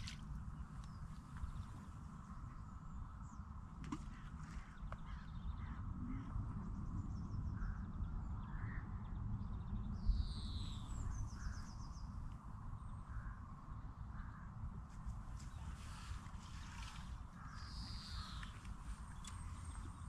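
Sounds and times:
wind rumble on microphone: 0:00.0 - 0:20.0
small birds chirping: 0:15.4 - 0:20.0.

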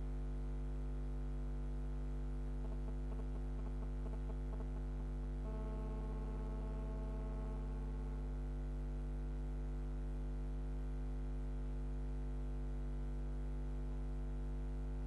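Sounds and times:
electrical mains hum: 0:02.0 - 0:08.4.

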